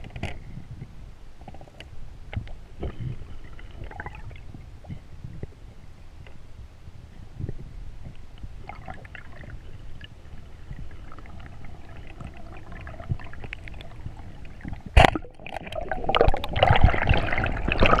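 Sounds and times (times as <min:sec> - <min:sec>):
underwater rush of water: 0:08.6 - 0:18.0.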